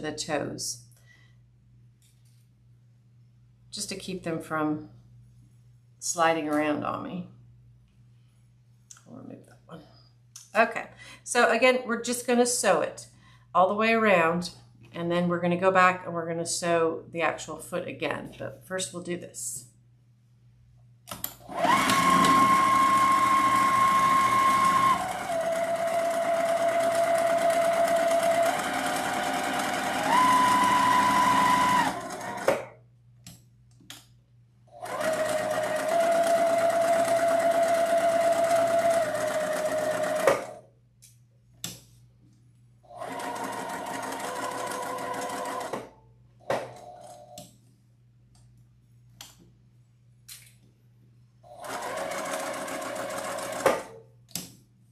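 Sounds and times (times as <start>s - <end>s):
sewing machine motor whine: 21.5s - 32.5s, 34.7s - 40.6s, 42.9s - 45.8s, 51.5s - 53.9s.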